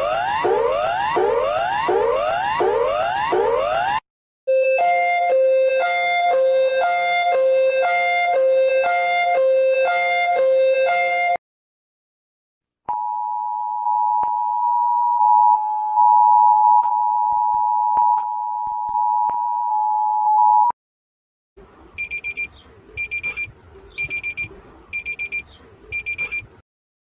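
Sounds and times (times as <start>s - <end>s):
rapid high beeps: 22.0s - 26.5s
two-tone alert signal: 22.0s - 26.5s.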